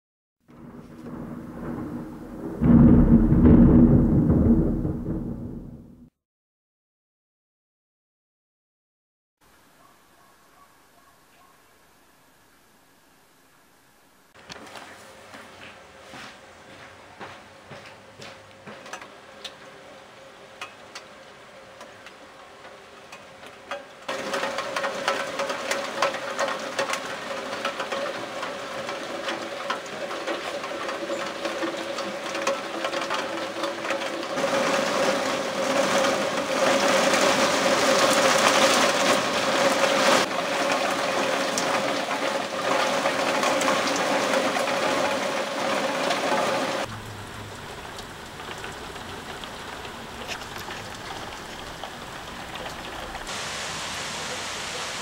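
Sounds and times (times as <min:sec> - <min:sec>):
heavy rain pattering on hard surfaces: 0:00.5 - 0:05.9, 0:17.2 - 0:55.0.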